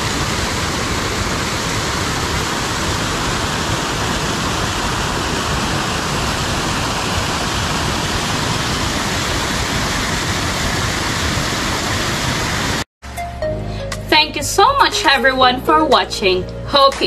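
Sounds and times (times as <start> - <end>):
waterfall rushing: 0.0 - 12.8.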